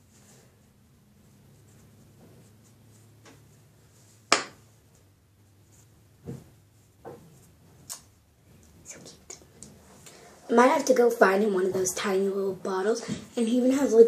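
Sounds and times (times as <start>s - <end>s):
soft brushing and rubbing: 0.0s - 10.7s.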